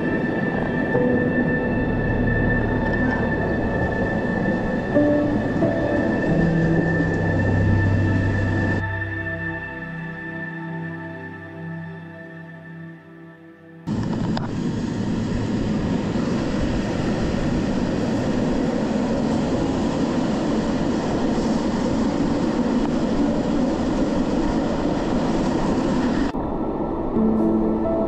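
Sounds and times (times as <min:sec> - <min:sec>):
train wheels rushing in tunnel: 0:00.0 - 0:09.8, 0:13.9 - 0:28.0
soft music: 0:00.0 - 0:13.9, 0:26.4 - 0:28.0.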